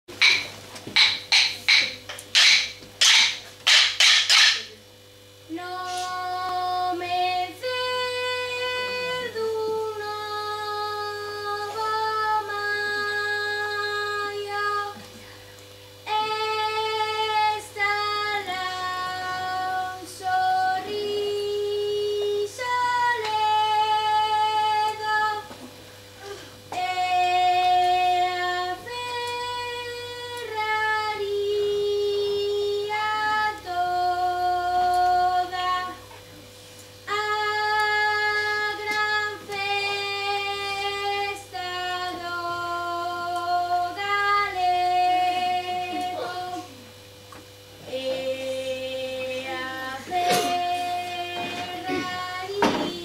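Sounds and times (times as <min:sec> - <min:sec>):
wooden sticks clacking: 0:00.1 - 0:04.7
girl singing: 0:05.5 - 0:15.1, 0:16.0 - 0:25.6, 0:26.2 - 0:36.1, 0:37.1 - 0:46.8, 0:47.8 - 0:53.0.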